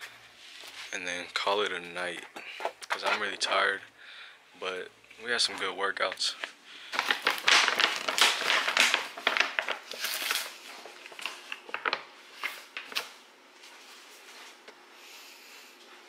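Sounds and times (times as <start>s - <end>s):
plastic packaging crinkling: 6.1s - 13.1s.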